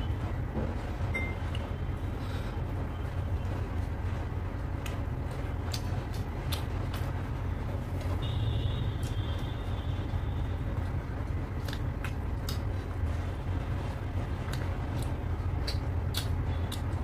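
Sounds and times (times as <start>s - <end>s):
eating by hand chewing: 5.7s - 7.2s, 11.6s - 13.0s, 14.3s - 17.0s.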